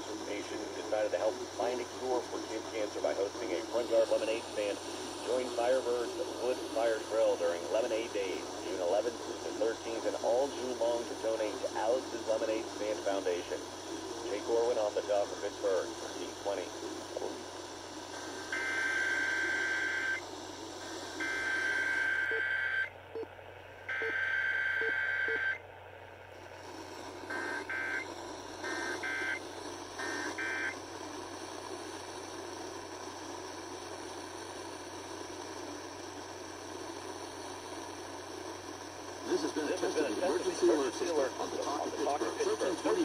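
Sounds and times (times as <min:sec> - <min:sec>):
radio static hiss: 0:00.0 - 0:23.2, 0:26.6 - 0:43.0
shrill buzzing data bursts: 0:18.2 - 0:20.2, 0:21.1 - 0:22.9, 0:23.9 - 0:25.6, 0:27.3 - 0:29.4, 0:30.0 - 0:30.8.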